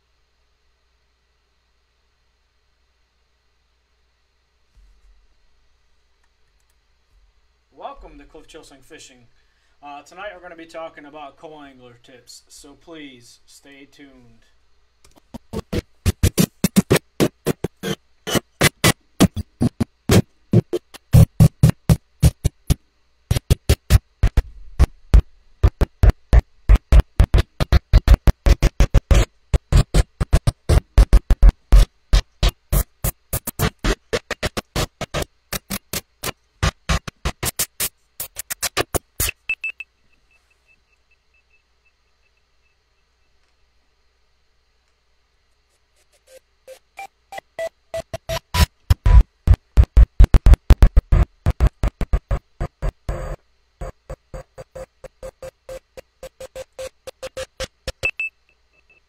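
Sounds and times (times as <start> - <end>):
electronic music with fast beat: 15.1 - 39.5, 46.7 - 58.2.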